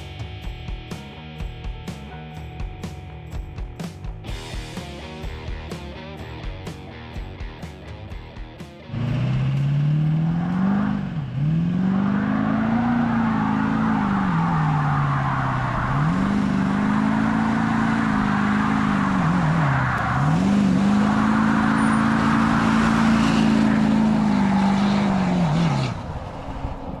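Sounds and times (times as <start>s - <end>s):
vehicle engine revving: 8.8s - 27.0s.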